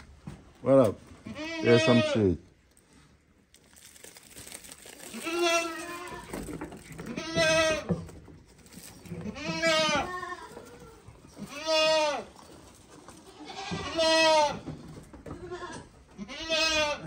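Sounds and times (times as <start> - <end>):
goat bleating: 1.2 - 2.4, 5.0 - 8.0, 9.0 - 12.5, 13.2 - 14.6, 15.3 - 17.0.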